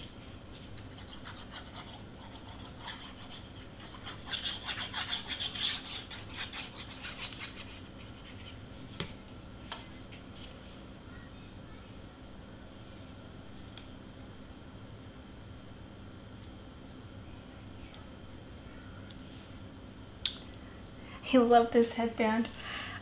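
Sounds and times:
scratchy rubbing of cardstock: 0.5 - 8.6.

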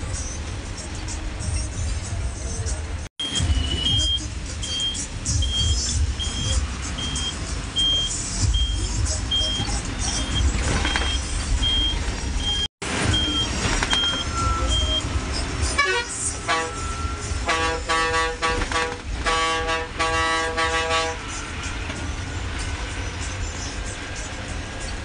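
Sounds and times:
diesel bus engine running: 0.0 - 25.0
high electronic beep: 3.2 - 15.5
multi-note bus horn blasts: 15.7 - 21.8.

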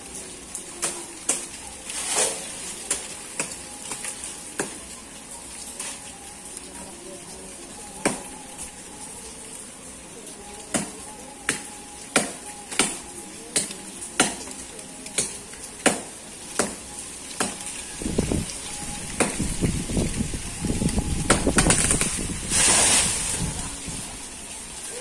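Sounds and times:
wind buffeting microphone: 18.0 - 24.2.

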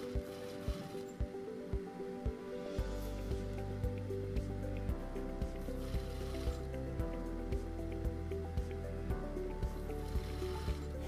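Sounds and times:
background music with a beat: 0.0 - 11.0
low bass line: 2.3 - 11.0.

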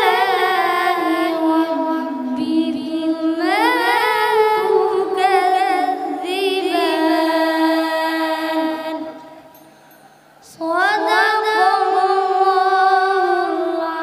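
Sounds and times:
boy chanting melodically: 0.0 - 9.4.

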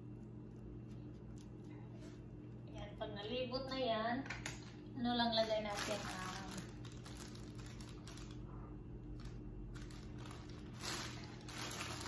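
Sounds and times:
steady low hum: 0.0 - 12.0
plastic bag rustling: 5.3 - 12.0.

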